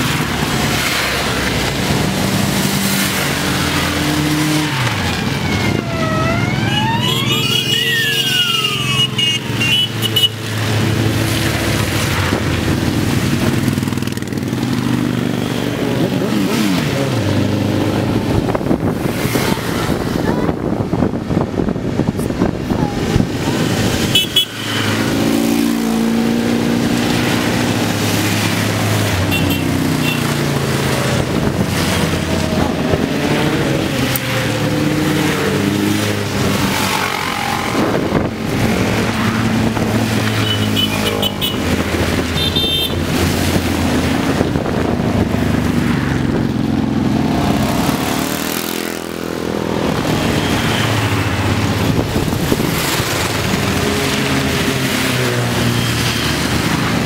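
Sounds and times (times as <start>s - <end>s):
tyres hissing on wet road: 0.0s - 5.4s
motorcycles riding past: 0.0s - 57.0s.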